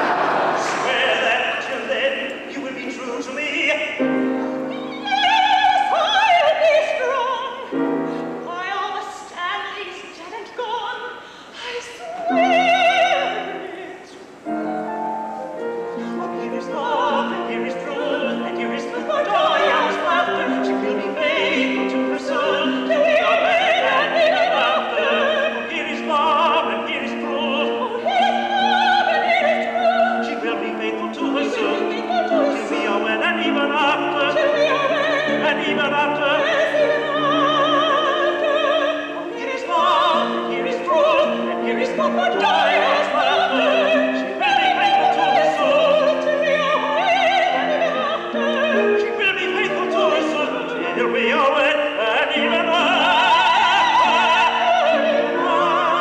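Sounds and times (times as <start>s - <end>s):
piano accompaniment: 0.0s - 9.4s, 12.0s - 56.0s
man singing opera: 0.6s - 4.3s, 16.0s - 56.0s
woman singing opera: 1.4s - 14.7s, 15.4s - 56.0s.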